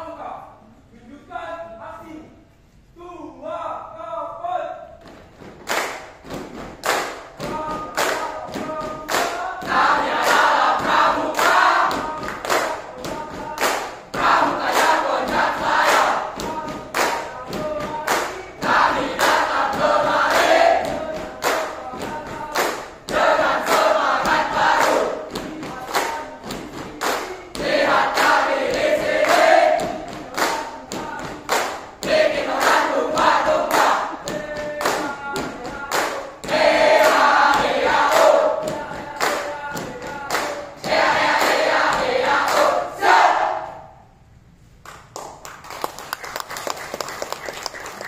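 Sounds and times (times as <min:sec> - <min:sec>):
stamping and clapping thumps: 0:05.0 - 0:42.1
group chanting and singing: 0:06.8 - 0:44.2.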